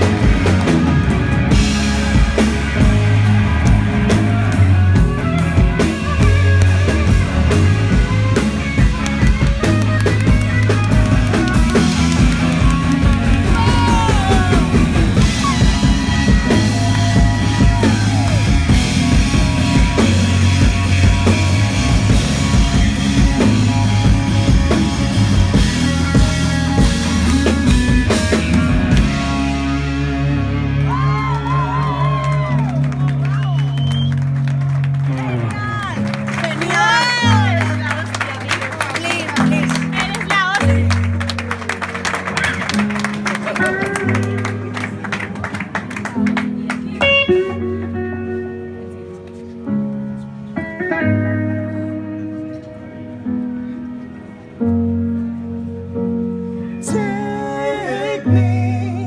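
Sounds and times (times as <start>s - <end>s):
drum kit: 0.0s - 33.0s
bass guitar: 0.0s - 59.0s
electric guitar lead: 0.0s - 59.0s.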